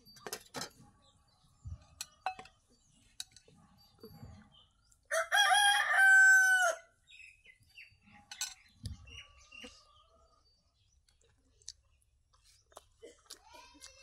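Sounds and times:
rooster crowing: 0:05.1 - 0:06.9.

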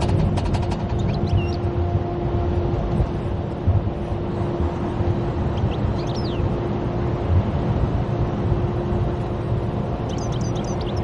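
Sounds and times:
car road noise rumble: 0:00.0 - 0:11.0.

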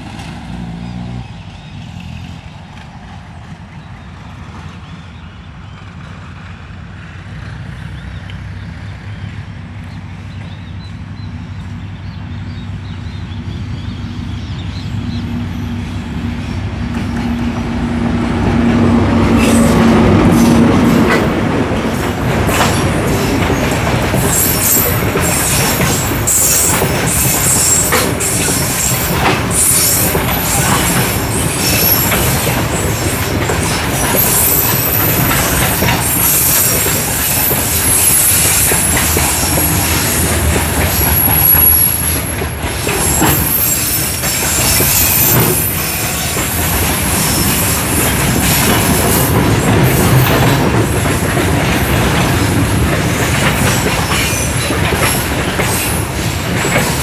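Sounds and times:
locomotive engine humming: 0:00.0 - 0:57.0
wheels clicking over rail joints: 0:19.3 - 0:57.0
high thin wheel squeal: 0:24.2 - 0:50.4.

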